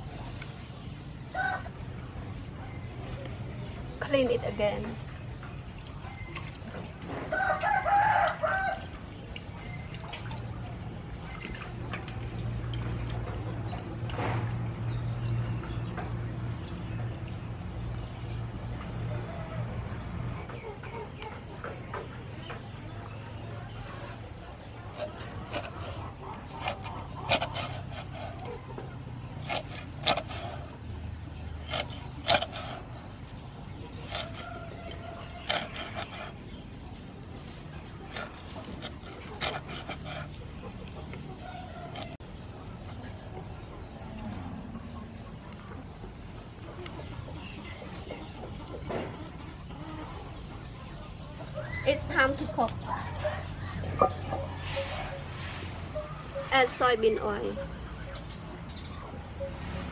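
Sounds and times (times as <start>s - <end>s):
rooster crowing: 1.3s - 1.8s, 7.3s - 8.9s
water splashing and dripping: 4.9s - 16.2s.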